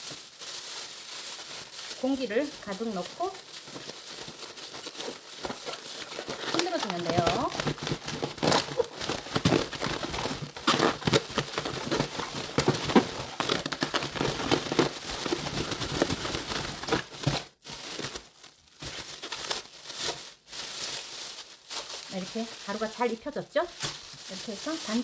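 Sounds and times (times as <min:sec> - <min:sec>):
plastic bag crinkling: 0:00.0 - 0:25.0
slices knocking inside bag: 0:04.8 - 0:18.2.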